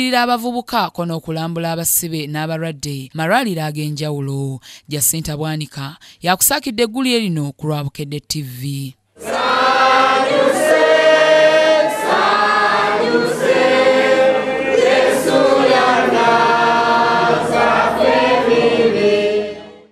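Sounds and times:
congregation singing a hymn: 9.2 - 19.9.

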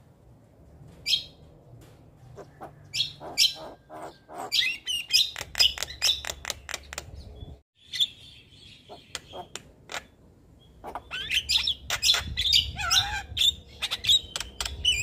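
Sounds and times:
bird clicks and chirps: 4.9 - 7.4, 9.0 - 10.1, 13.8 - 15.0.

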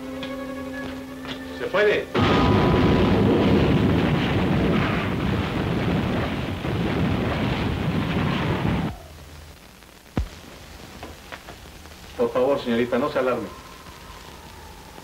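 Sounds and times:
heavy rain: 0.0 - 15.0
thunder rumble: 2.1 - 15.0
faint hiss: 4.1 - 15.0.

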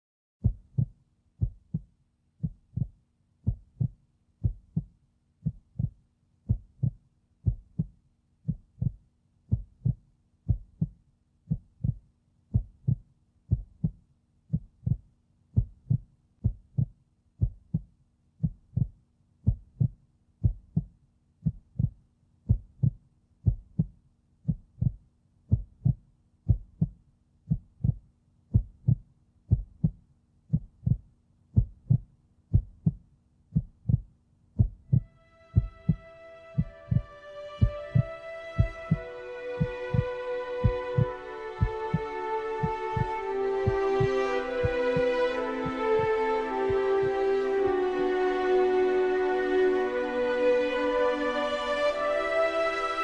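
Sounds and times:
heartbeat thumps: 0.4 - 46.1.

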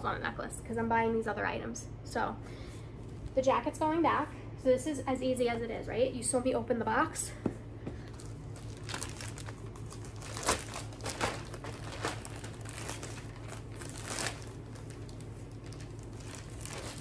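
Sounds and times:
packaging crinkling and rustling: 8.0 - 17.0.

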